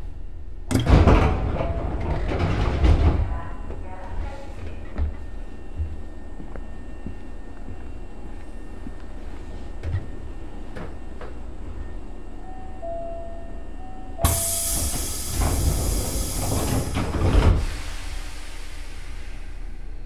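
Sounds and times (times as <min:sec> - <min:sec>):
train car low hum: 0:00.0 - 0:20.0
two-tone chime: 0:12.4 - 0:14.6
air hiss of doors closing: 0:14.2 - 0:19.8.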